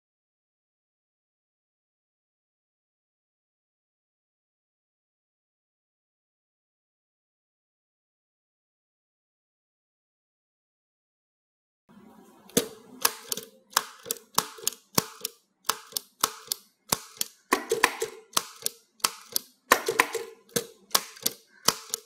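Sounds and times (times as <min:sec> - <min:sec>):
typewriter keys clacking: 0:13.0 - 0:22.0.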